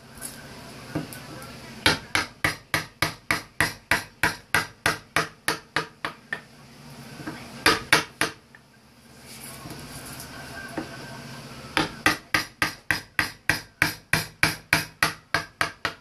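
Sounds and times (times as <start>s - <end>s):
mallet striking chisel: 7.7s - 8.4s, 11.8s - 16.0s.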